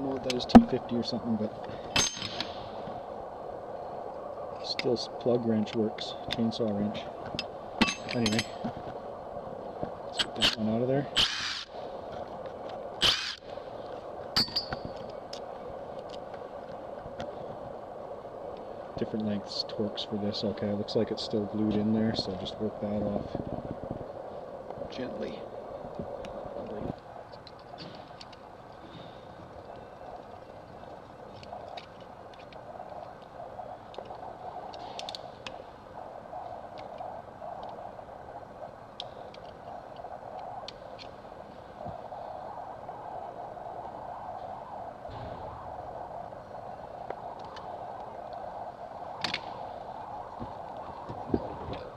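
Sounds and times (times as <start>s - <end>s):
steady background hum: 0.0s - 51.9s
metal clink ringing: 14.4s - 14.8s.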